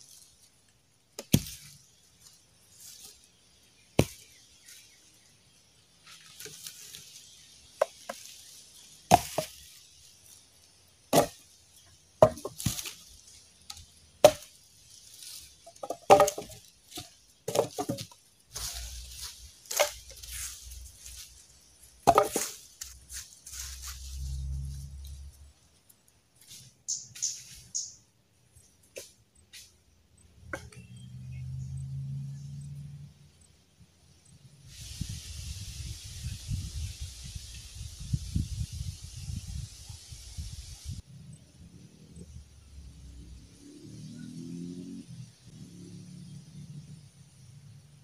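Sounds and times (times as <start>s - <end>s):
wooden logs knocking: 1.2s - 1.8s, 9.1s - 9.7s, 11.1s - 11.4s, 12.2s - 13.0s, 13.7s - 14.6s, 15.2s - 20.5s, 22.0s - 22.9s, 30.5s - 30.8s
leaf litter rustling: 1.3s - 3.3s, 6.0s - 11.5s, 12.3s - 25.0s.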